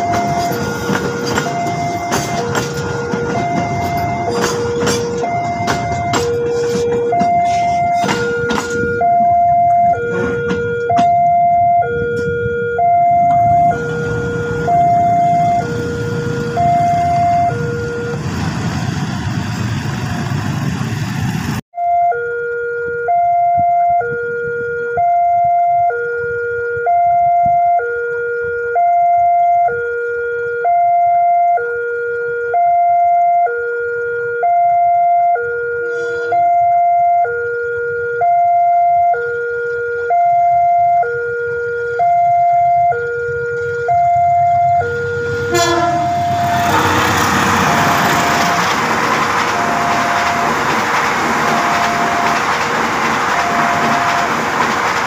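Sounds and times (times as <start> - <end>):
level crossing two-note alarm: 0.0 - 18.2, 21.8 - 48.7
freight train rumbling on rails: 0.0 - 21.6, 42.6 - 55.0.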